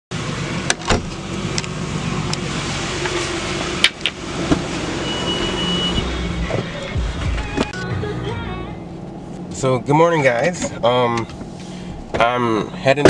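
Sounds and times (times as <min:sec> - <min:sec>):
high beep: 0:05.0 - 0:06.1.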